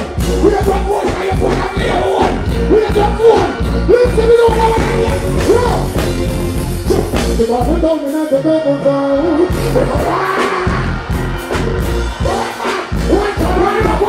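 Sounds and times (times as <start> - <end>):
heavy bass: 0.0 - 14.0
live reggae band: 0.0 - 14.0.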